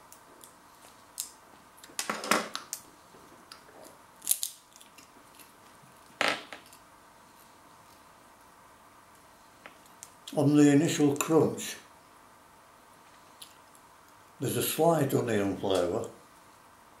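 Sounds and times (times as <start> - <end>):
crackers crunching: 3.4 - 5.6.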